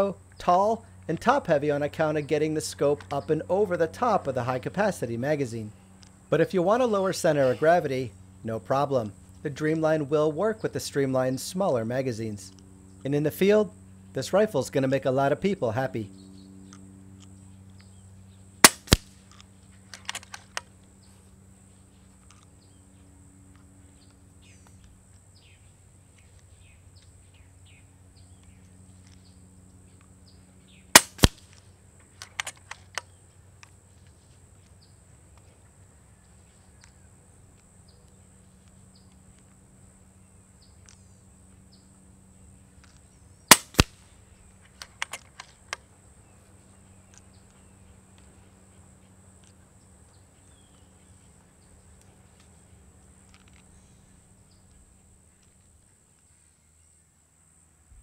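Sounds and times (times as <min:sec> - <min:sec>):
air rifle shots cracking: 0:18.6 - 0:19.2, 0:30.9 - 0:31.6, 0:43.5 - 0:44.1
rifle action clicks: 0:18.6 - 0:20.7, 0:31.0 - 0:31.6, 0:32.2 - 0:33.1, 0:42.8 - 0:44.0, 0:44.7 - 0:45.8.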